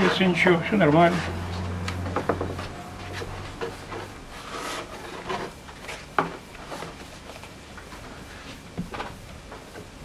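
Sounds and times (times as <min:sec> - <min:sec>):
hands scraping on wooden surface: 0:01.1 - 0:07.0.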